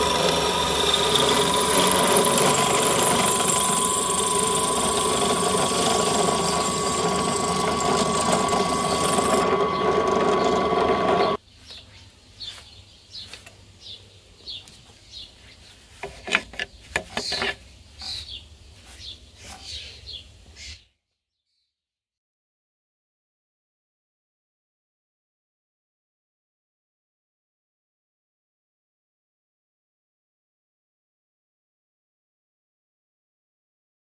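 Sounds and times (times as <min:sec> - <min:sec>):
brush sweeping metal swarf: 0:00.0 - 0:11.4
electric drill cutting steel: 0:00.0 - 0:11.4.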